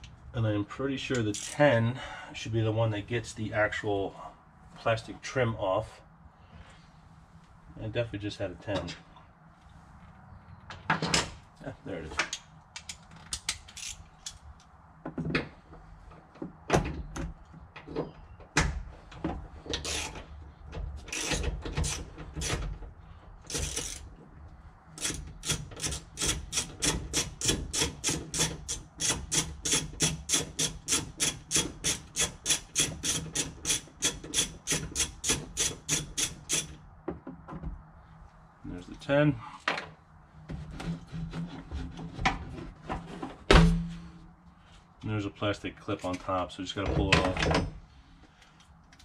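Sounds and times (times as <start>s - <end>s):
ratchet clicking: 12.8s - 14.4s, 21.1s - 22.6s, 23.5s - 24.0s, 25.0s - 36.7s.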